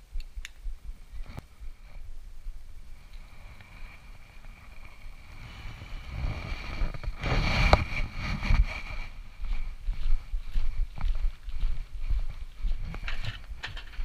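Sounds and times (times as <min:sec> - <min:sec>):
cloth rubbing on microphone: 0:03.2 - 0:09.7.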